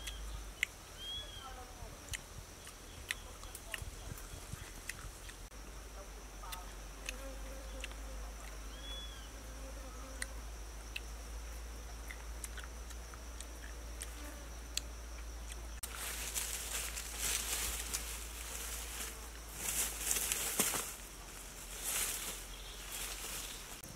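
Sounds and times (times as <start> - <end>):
small chewing clicks: 0.0 - 0.8, 2.0 - 5.5, 6.4 - 9.1, 10.1 - 15.9
rustling of leaves underfoot: 15.8 - 23.9.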